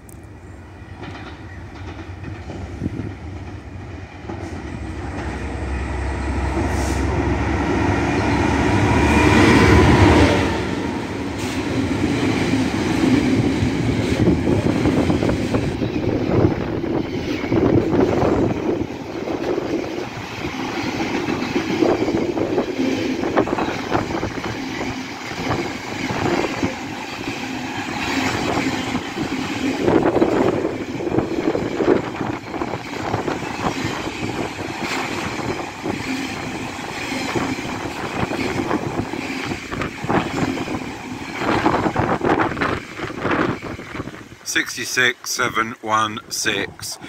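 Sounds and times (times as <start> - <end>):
freight train rumbling past: 0.0 - 47.0
wheels clicking over rail joints: 0.9 - 5.5.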